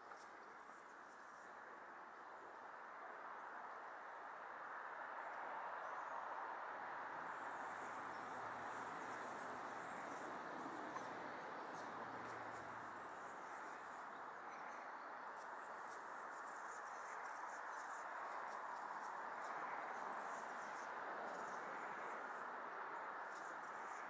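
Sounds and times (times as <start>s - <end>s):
faint high ticks or chirps: 7.4s - 24.0s.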